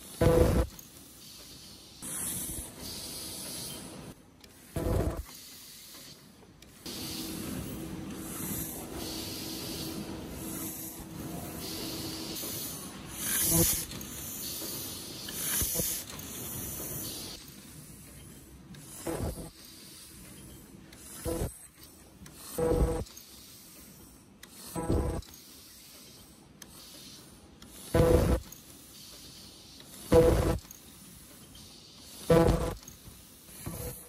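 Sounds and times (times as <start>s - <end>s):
air hisses: 0.2s - 4.0s, 4.6s - 18.1s.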